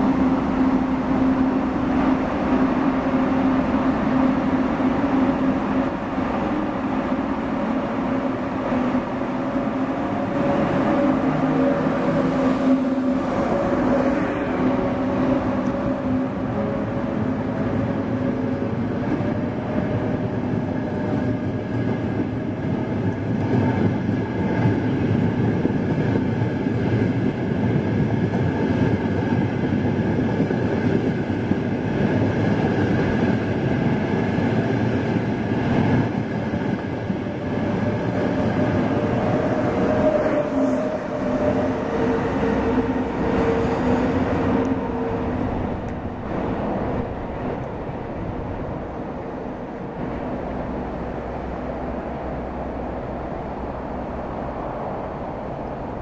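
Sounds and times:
electric train whine: 0.0s - 56.0s.

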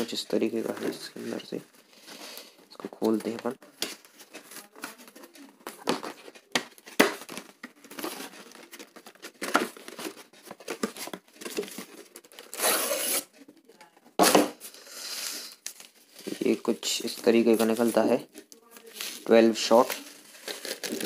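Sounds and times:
card and paper crinkling: 0.0s - 13.9s, 14.5s - 21.0s
box scraping: 7.9s - 13.3s.

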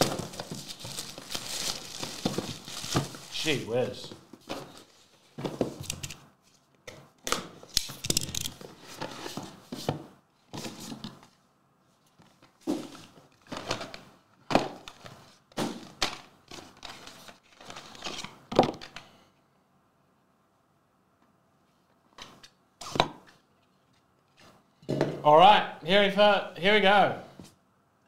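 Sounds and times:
cardboard packaging rustling: 0.0s - 5.9s.

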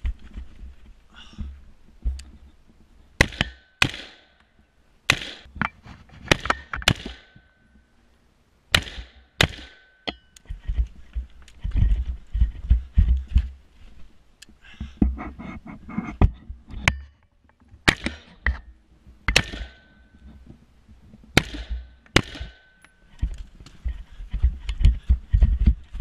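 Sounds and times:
rifle shots with echo: 3.2s - 4.3s, 5.1s - 5.5s, 6.3s - 7.4s, 8.7s - 9.9s, 19.3s - 19.8s, 21.4s - 22.6s
thumps and knocks of gear: 10.4s - 13.6s, 23.1s - 26.0s.

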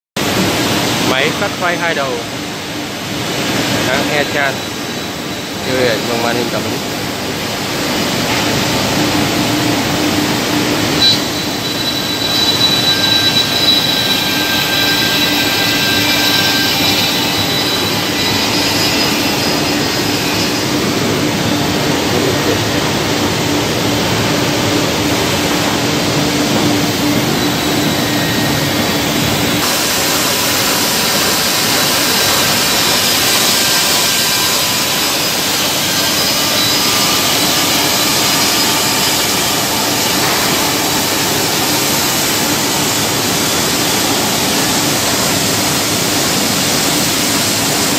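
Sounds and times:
milling machine whirring: 2.4s - 47.9s.

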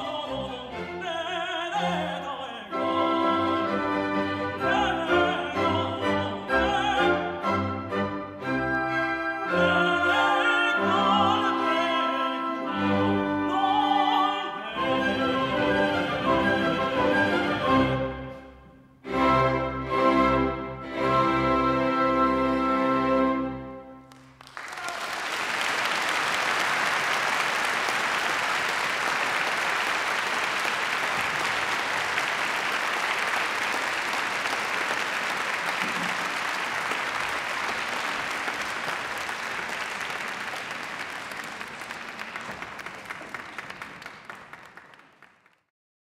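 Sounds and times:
audience applauding: 24.1s - 45.7s.

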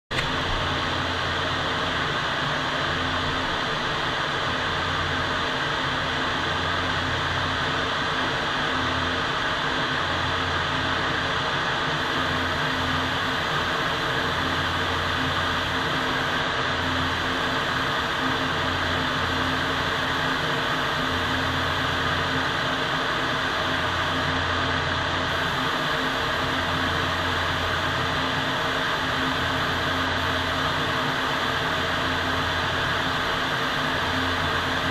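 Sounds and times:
ventilation fans rushing air: 0.1s - 34.9s
low fan hum: 12.0s - 34.9s.

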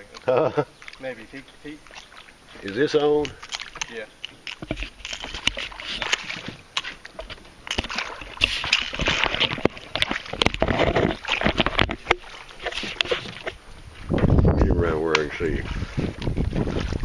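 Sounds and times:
water sloshing: 0.0s - 17.0s
camera handling knocks and rubbing: 3.5s - 13.6s.

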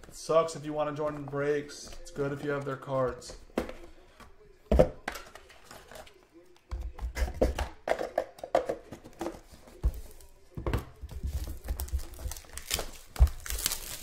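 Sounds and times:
plastic wrapping crinkling and tearing: 11.3s - 14.0s.

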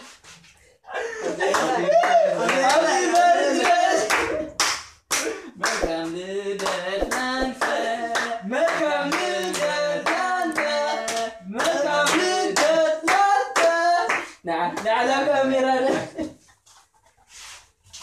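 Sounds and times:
hands clapping: 1.4s - 14.9s
man singing: 5.6s - 16.2s.

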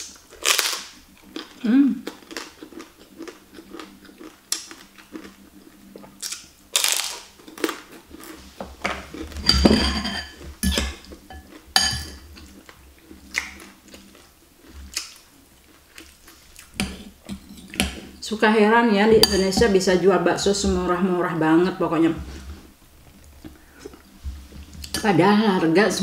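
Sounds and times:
crunching and chewing food: 0.0s - 9.6s, 10.2s - 18.1s
cutlery clinking on glass bowl: 9.4s - 12.2s, 19.2s - 19.7s.

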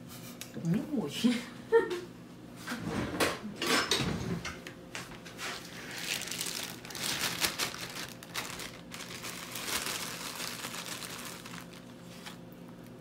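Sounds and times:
plastic bag crinkling: 5.7s - 12.5s.

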